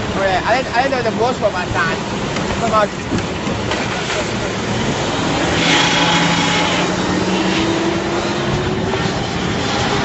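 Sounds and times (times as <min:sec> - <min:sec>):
hydraulics working: 0:00.0 - 0:10.0.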